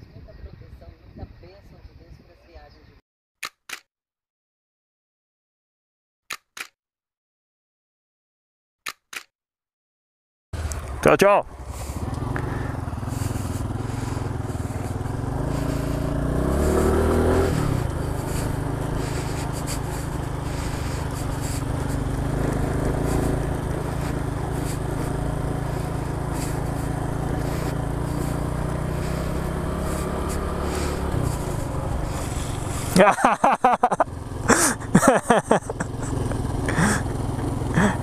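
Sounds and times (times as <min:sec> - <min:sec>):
wind and road noise: 0:00.0 - 0:03.0, 0:10.6 - 0:38.0
motorcycle engine accelerating: 0:10.6 - 0:38.0.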